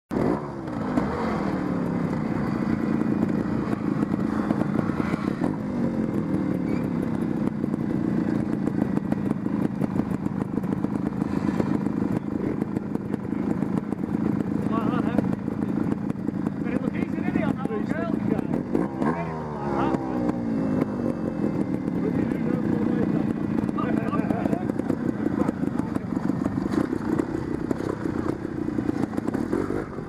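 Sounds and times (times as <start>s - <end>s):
motorcycle engine running: 0.1s - 30.0s.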